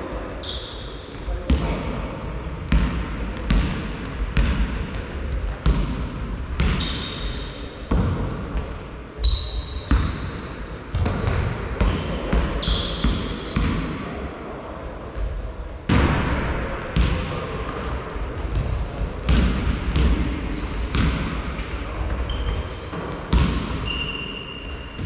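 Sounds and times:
basketball bouncing in a gym: 0.2s - 14.2s, 15.1s - 25.0s
sneakers squeaking on court: 0.3s - 1.3s, 6.6s - 8.1s, 9.2s - 14.0s, 18.4s - 19.4s, 20.0s - 25.0s.

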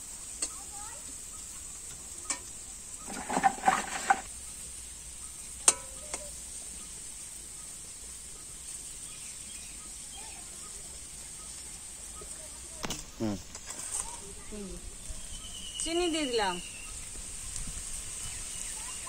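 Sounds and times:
vegetables sizzling in oil: 0.0s - 19.0s
metal spatula scraping pan: 2.3s - 4.3s.

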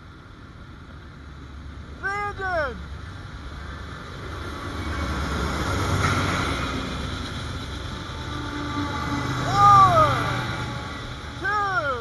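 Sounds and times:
diesel locomotives passing: 0.0s - 12.0s.

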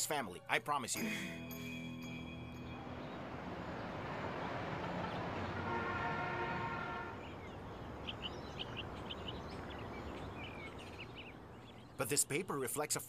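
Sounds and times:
birds chirping: 1.6s - 13.0s
vehicle passing: 2.1s - 11.8s
vehicle horn: 5.0s - 7.3s.

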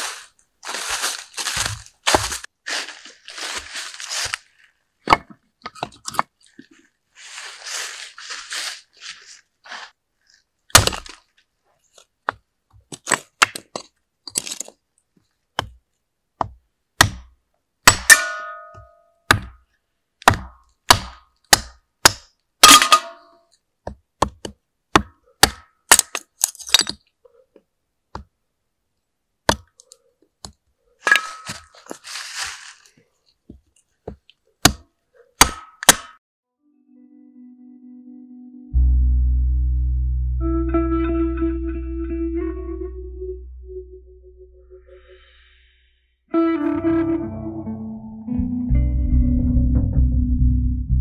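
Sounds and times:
soft rustle: 0.0s - 5.0s, 6.4s - 12.1s, 31.5s - 34.4s.

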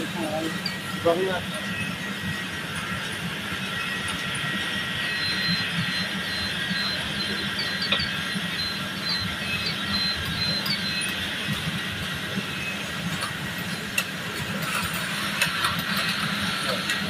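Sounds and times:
high machine whine: 0.0s - 17.0s.

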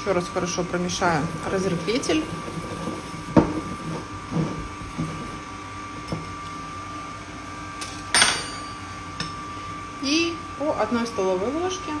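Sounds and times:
stand mixer running: 0.0s - 7.7s.

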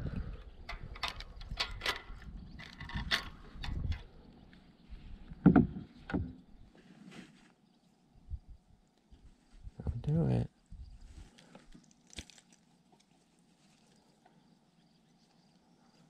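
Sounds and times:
knocks and clatter on kayak: 5.4s - 6.4s.

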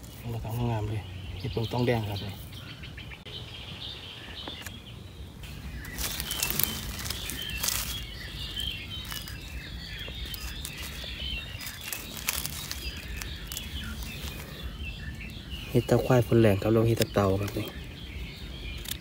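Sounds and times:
small birds chirping: 0.0s - 19.0s
rustling and clicking: 5.8s - 14.6s.

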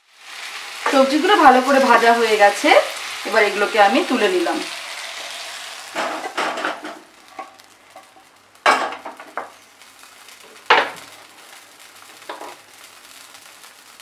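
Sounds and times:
hot oil sizzling: 0.0s - 14.0s
pan and spatula clattering: 5.9s - 8.1s.

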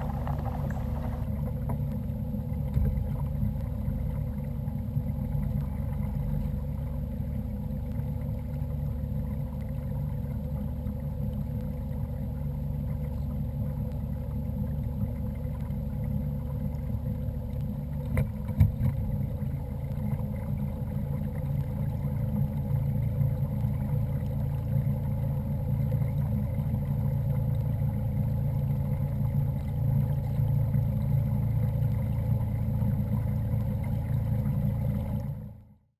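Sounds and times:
small motor droning: 0.0s - 1.4s
water and hull rumble: 0.0s - 35.9s.

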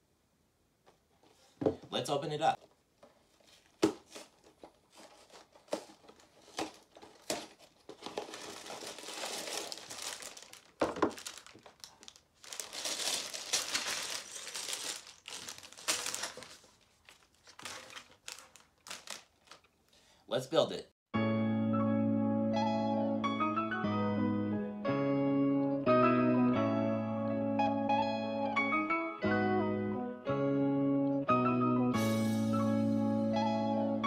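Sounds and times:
plastic bags crinkling: 3.2s - 20.0s
cardboard box being opened: 3.4s - 19.6s.

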